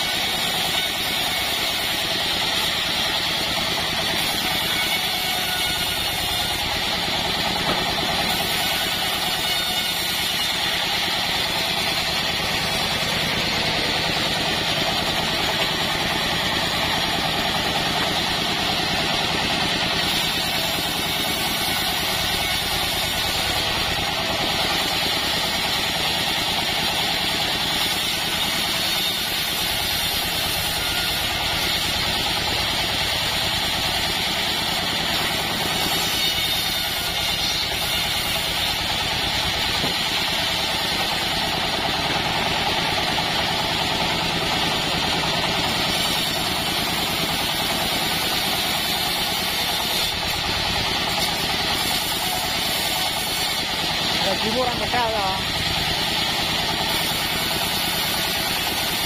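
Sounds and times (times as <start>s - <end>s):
band sawmill droning: 0.0s - 59.0s.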